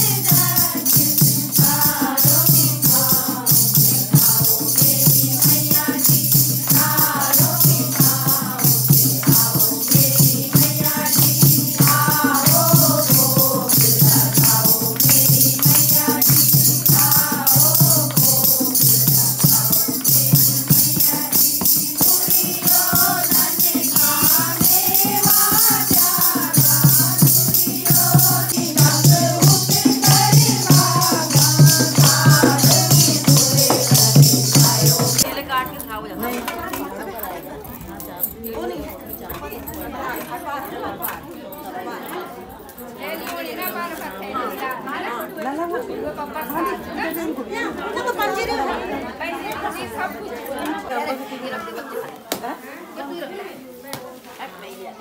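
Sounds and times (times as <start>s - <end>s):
drum beat: 0.0s - 35.3s
group devotional singing: 0.0s - 35.3s
jingling shaker percussion: 0.0s - 47.3s.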